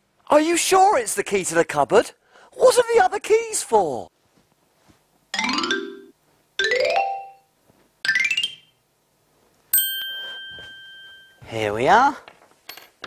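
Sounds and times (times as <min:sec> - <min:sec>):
bright bell-like ding: 0:09.8 - 0:11.4.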